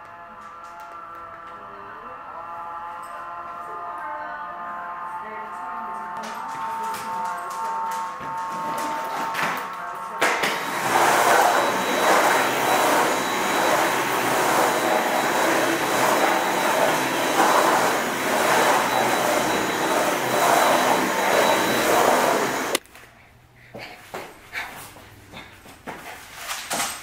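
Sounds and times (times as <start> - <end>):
stick vacuum whirring: 5.6 - 22.9.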